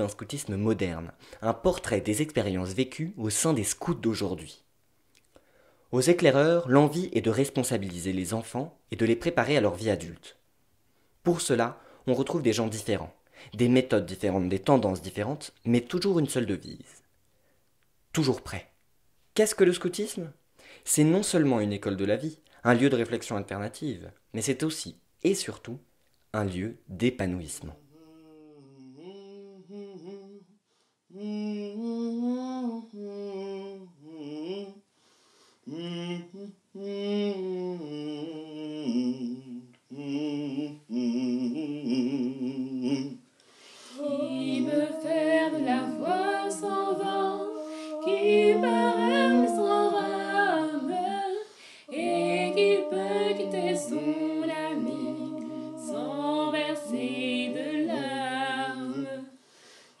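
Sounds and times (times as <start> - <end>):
voices singing in harmony: 27.9 - 30.5, 31.1 - 34.8, 35.7 - 59.4
person humming melody: 27.9 - 34.8, 35.7 - 43.2, 44.0 - 59.3.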